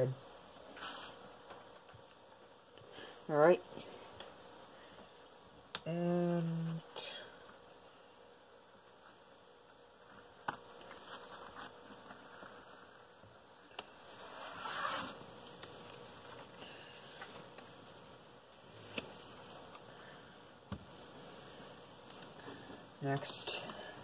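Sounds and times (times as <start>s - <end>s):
playing cards sliding and rustling: 0.6s - 1.3s, 10.0s - 13.1s, 13.9s - 19.9s.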